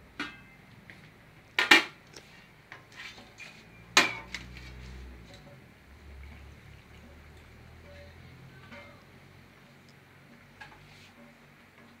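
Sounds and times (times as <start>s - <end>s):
metal cookware clanking: 0.2s - 0.6s, 3.1s - 4.6s, 7.8s - 9.2s
light knocks of pots: 7.1s - 9.2s.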